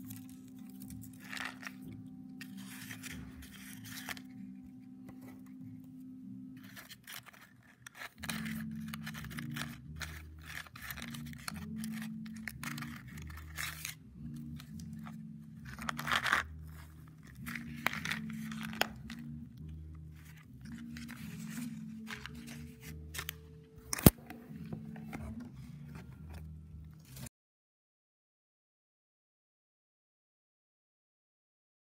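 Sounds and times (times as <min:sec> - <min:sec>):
soft background music: 0:00.0 - 0:27.3
cardboard rustling and crinkling: 0:00.1 - 0:04.4, 0:06.6 - 0:14.0, 0:14.6 - 0:19.2, 0:20.2 - 0:27.3.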